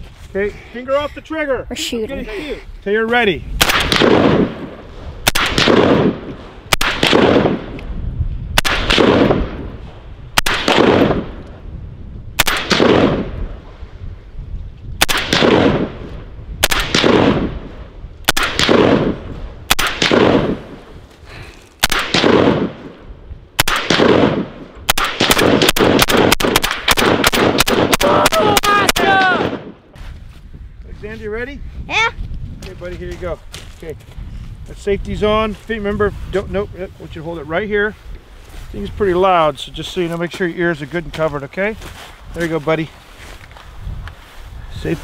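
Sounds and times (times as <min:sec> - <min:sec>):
gunshot echo off mountains: 0:03.6 - 0:07.8
rifle shots: 0:03.6 - 0:07.8, 0:08.6 - 0:09.7, 0:10.4 - 0:11.4, 0:12.4 - 0:13.4, 0:15.0 - 0:17.6, 0:18.2 - 0:20.8, 0:21.8 - 0:22.9, 0:23.6 - 0:29.8.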